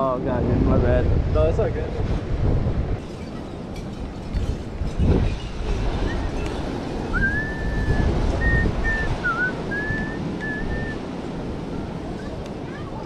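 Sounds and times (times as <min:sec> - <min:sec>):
wind buffeting microphone: 0:00.0 - 0:13.0
person whistling a tune: 0:07.1 - 0:11.0.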